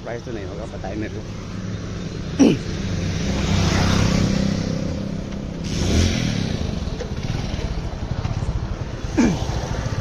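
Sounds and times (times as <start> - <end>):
road and wind noise: 0.0 - 10.0
vehicle engine speeding up: 2.8 - 8.0.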